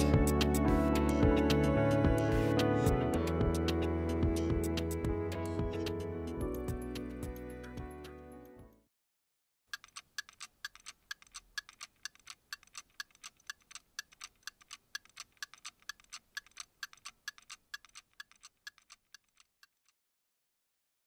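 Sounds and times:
background music: 0:00.0 - 0:08.9
alarm clock ticking: 0:09.7 - 0:19.9.

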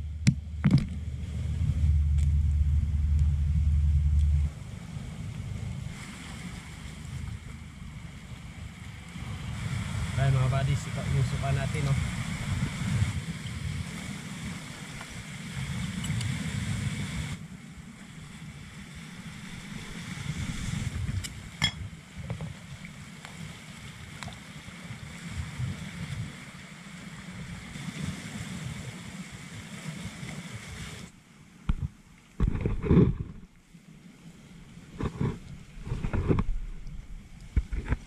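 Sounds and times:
wind buffeting microphone: 0:00.0 - 0:17.4, 0:18.4 - 0:22.7
sea waves on rocky shore: 0:00.0 - 0:38.0.

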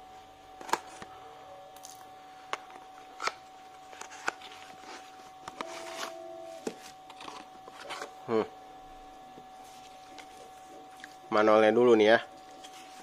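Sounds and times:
rustling of card and plastic: 0:02.5 - 0:08.2, 0:09.6 - 0:11.2, 0:12.0 - 0:13.0.

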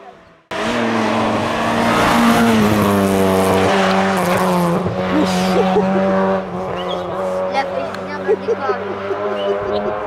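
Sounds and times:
rally car engine revving high: 0:00.0 - 0:10.0.

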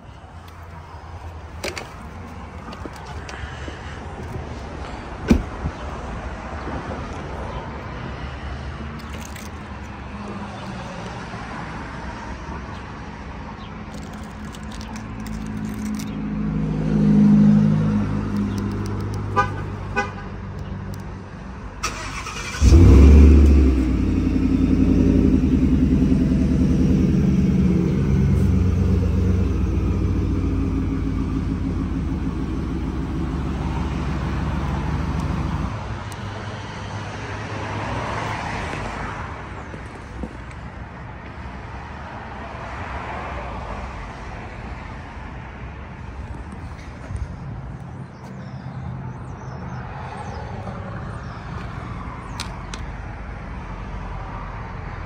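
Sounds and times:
truck engine starting and idling: 0:21.7 - 0:36.2.

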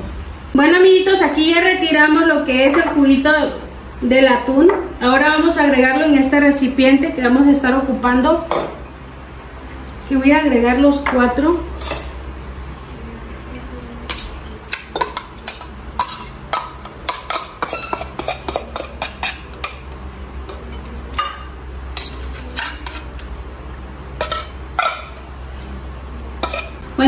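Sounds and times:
metal spoon scraping tin: 0:14.1 - 0:16.4, 0:17.1 - 0:19.8.

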